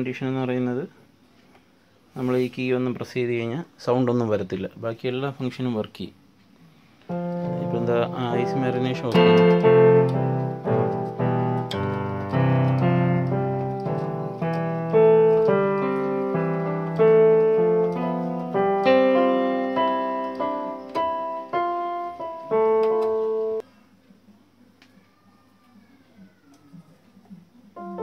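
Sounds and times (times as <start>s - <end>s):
electronic keyboard playing chords: 7.1s - 23.6s, 27.8s - 28.0s.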